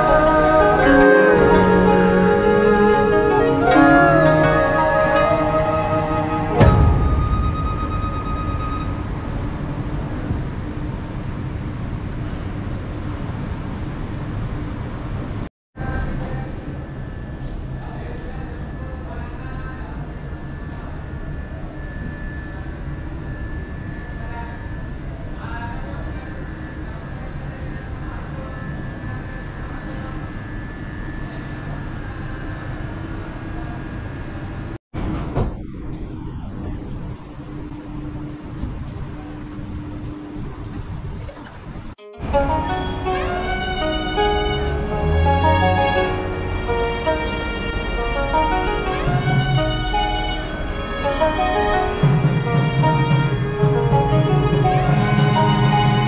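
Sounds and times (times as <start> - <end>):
ringing tone: 0.0 - 9.3, 42.0 - 56.0
city street rumble: 0.0 - 19.0, 31.4 - 56.0.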